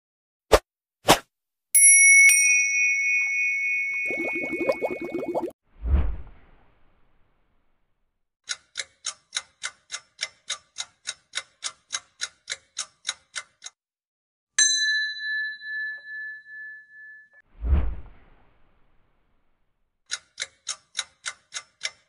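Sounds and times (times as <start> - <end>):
bright bell ding: 1.8 - 4.7, 14.6 - 17.4.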